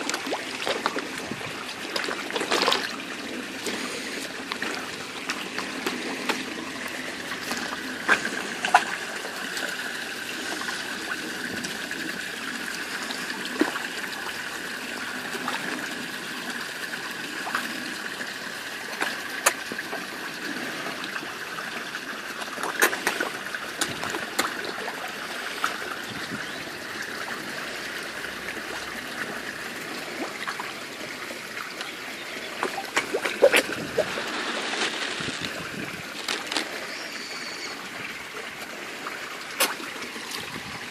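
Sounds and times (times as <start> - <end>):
fish splashing at surface: 0.0 - 12.2, 22.4 - 26.0, 27.7 - 38.2, 39.0 - 40.6
water trickling into pond: 0.0 - 40.9.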